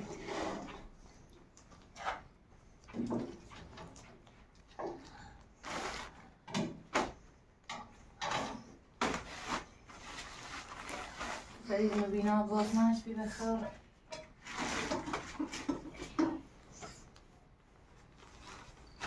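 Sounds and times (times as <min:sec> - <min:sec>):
objects knocking and scraping: 0:01.8 - 0:05.1, 0:05.7 - 0:12.1, 0:14.1 - 0:17.0.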